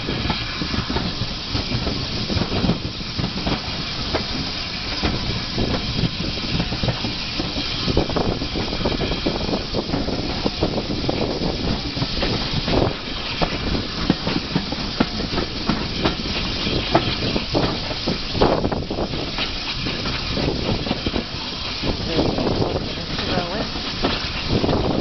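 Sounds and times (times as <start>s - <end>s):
steady rushing hiss: 0.0s - 25.0s
train wheels clacking over points: 0.0s - 25.0s.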